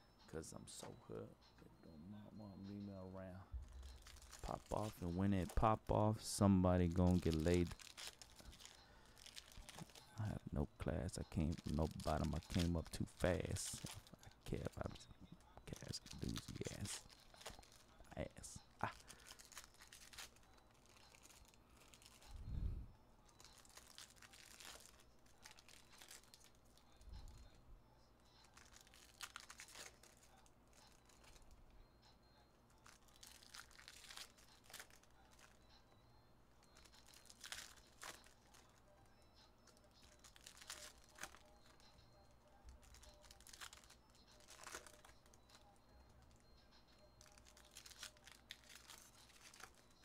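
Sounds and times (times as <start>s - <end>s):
card pack wrappers crinkling: 3.6s - 15.0s, 15.6s - 18.2s, 18.8s - 22.3s, 23.4s - 26.7s, 28.4s - 31.5s, 32.8s - 35.6s, 36.8s - 38.8s, 39.8s - 41.8s, 42.7s - 45.6s, 47.2s - 50.0s.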